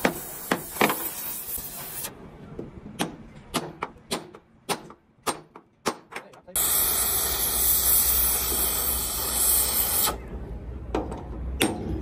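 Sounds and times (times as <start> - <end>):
torch hissing: 0.0 - 2.1, 6.6 - 10.2.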